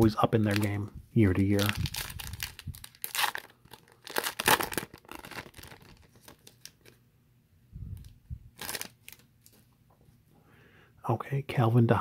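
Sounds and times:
foil wrapper tearing and crinkling: 1.5s - 7.0s, 8.6s - 9.2s.

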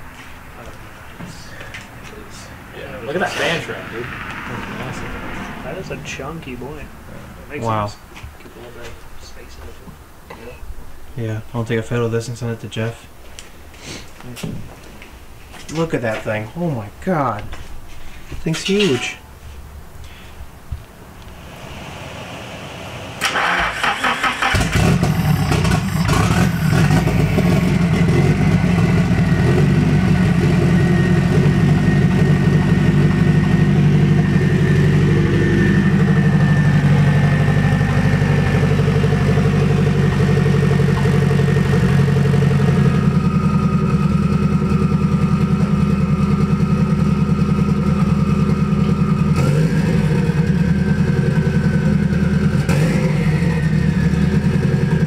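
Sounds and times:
car engine idling: 0.0s - 8.2s, 21.1s - 55.0s
starter cranking engine: 23.2s - 27.9s.

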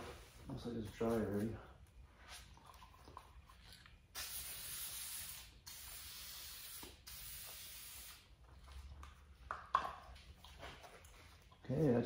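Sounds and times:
aerosol spray can hissing: 4.2s - 8.3s.

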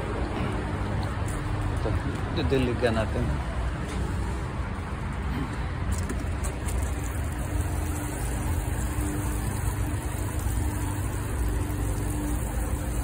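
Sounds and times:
water pouring onto soil: 6.0s - 13.0s.

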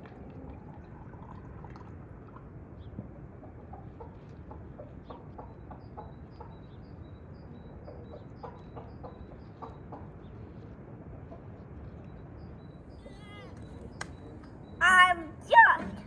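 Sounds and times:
low outdoor background: 0.0s - 16.0s
chickens clucking: 2.9s - 6.7s, 7.4s - 10.4s
bird high chirps: 12.1s - 16.0s.

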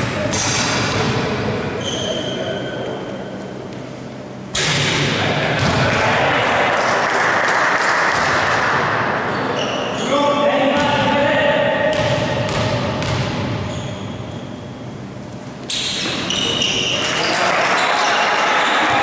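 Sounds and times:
basketball bouncing on court floor: 0.0s - 1.3s, 5.6s - 6.0s, 8.1s - 8.8s, 10.8s - 11.1s, 11.9s - 13.8s
voices echoing in a gym: 0.0s - 19.0s.

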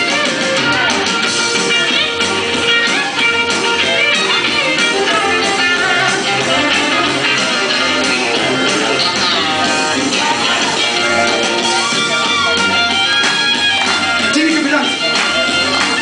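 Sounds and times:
country music over loudspeakers: 0.0s - 16.0s.

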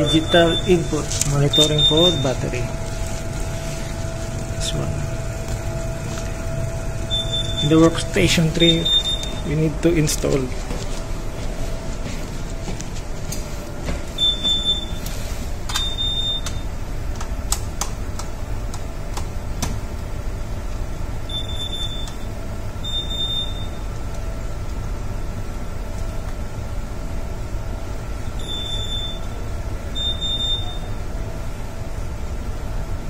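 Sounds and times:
high electronic alarm beeps: 0.0s - 2.7s, 7.0s - 9.7s, 14.2s - 15.1s, 15.7s - 16.6s, 21.3s - 23.8s, 28.4s - 29.4s, 30.0s - 31.0s
steady low hum: 0.0s - 33.0s.

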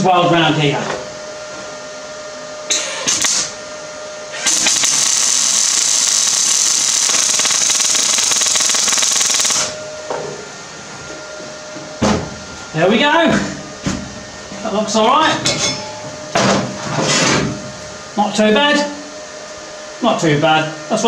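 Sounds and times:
welding arc crackling: 3.1s - 3.5s, 4.4s - 9.8s.

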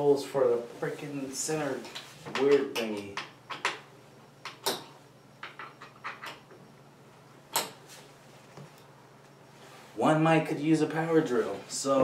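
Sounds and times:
clicks and knocks of hardware: 4.4s - 6.6s, 7.5s - 7.8s.

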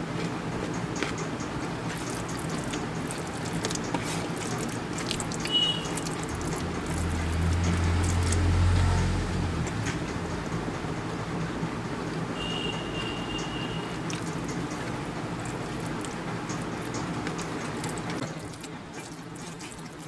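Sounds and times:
fingers mashing rice on steel plate: 0.2s - 8.2s
wet chewing mouth clicks: 0.7s - 8.5s, 13.9s - 20.0s.

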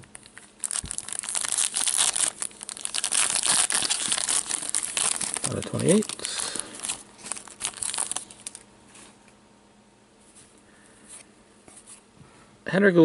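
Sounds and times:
trading cards rustling and clicking: 0.3s - 8.6s.

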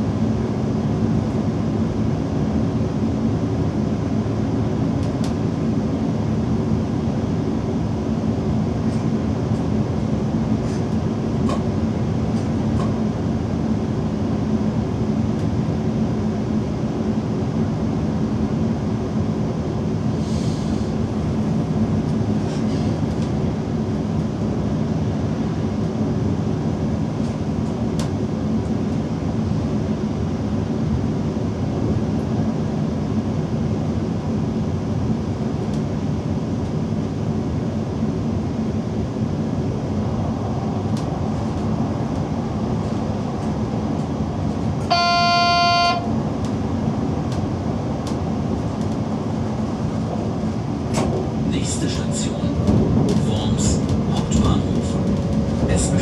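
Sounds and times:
train rolling noise: 0.0s - 56.0s
train horn blast: 44.8s - 46.1s.

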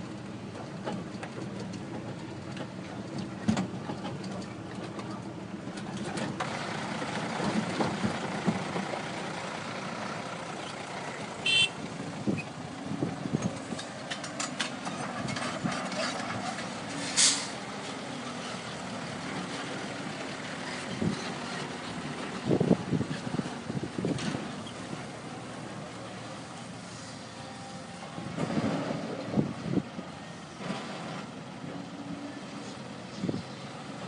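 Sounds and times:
diesel engines running: 0.0s - 34.0s
excavator knocks and clatter: 0.5s - 6.6s, 7.2s - 9.0s, 28.2s - 29.5s.

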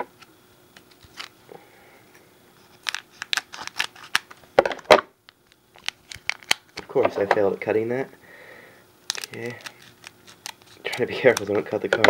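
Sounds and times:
scissors snipping wrapper: 2.8s - 4.4s, 5.4s - 6.8s, 9.1s - 11.6s.

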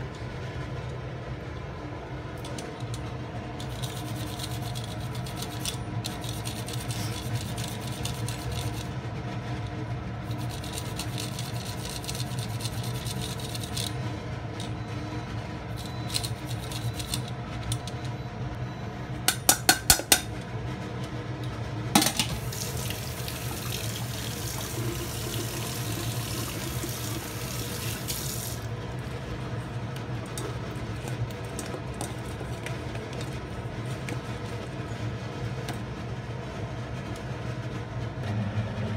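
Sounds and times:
grater tapping against metal bowl: 19.3s - 20.3s
tap water running into bowl: 22.0s - 28.7s.

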